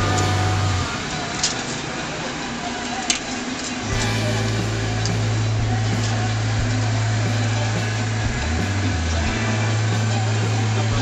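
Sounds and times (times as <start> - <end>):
small engine idling: 3.9 - 11.0.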